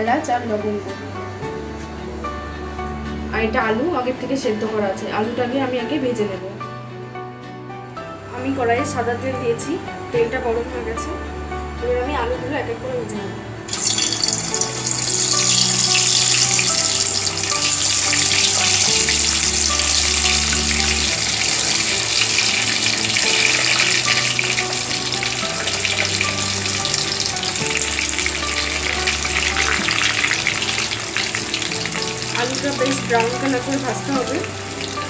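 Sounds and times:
background music with low notes: 0.0 - 35.0
potatoes sizzling in hot oil: 13.7 - 35.0.

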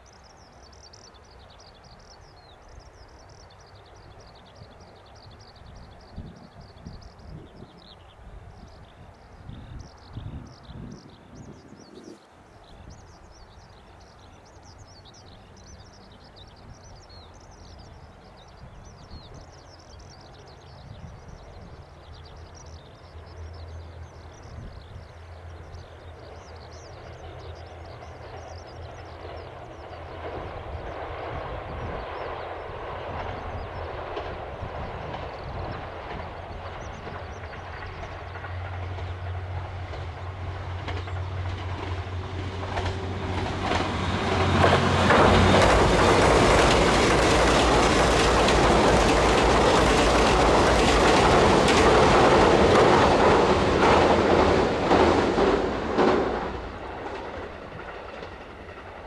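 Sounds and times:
diesel train engine hum: 12.4 - 59.0
train wheels clattering on rails: 25.2 - 59.0.

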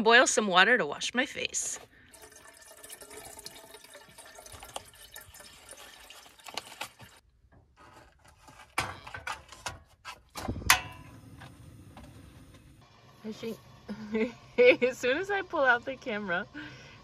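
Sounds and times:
water filling a kettle: 1.9 - 7.2
kettle clunking on stove: 10.6 - 11.2.

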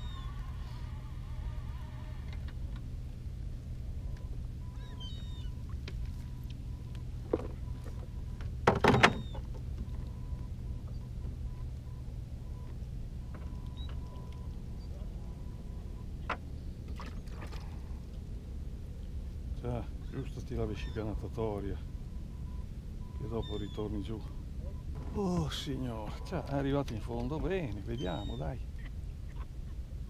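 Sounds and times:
boat engine idling: 0.0 - 30.0
knocks against boat: 8.6 - 9.4.

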